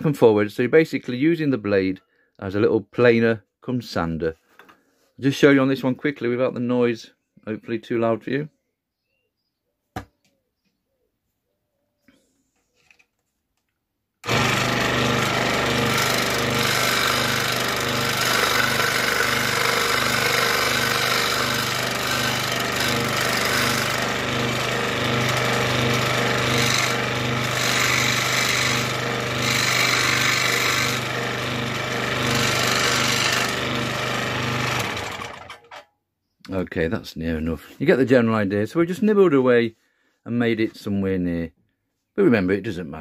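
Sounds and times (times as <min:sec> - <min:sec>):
scroll saw cutting plywood: 0:14.2 - 0:35.8.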